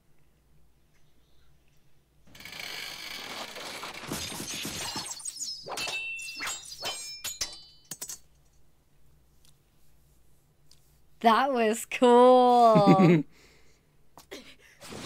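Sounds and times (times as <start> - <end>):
metallic clinks and impacts: 4.3 - 8.6.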